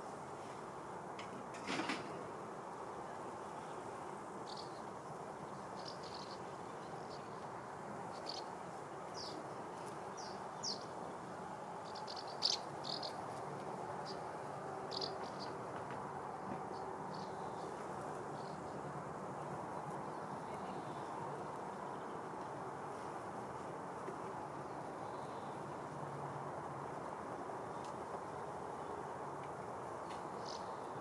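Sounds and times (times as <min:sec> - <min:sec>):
small bird chirping: 0:04.5 - 0:04.8, 0:05.8 - 0:07.4, 0:08.1 - 0:08.5, 0:11.8 - 0:13.2, 0:14.9 - 0:15.5.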